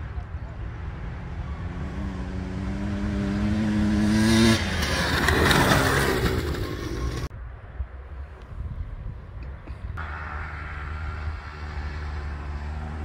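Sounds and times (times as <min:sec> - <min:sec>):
dirt bike engine revving: 0:00.9 - 0:07.3.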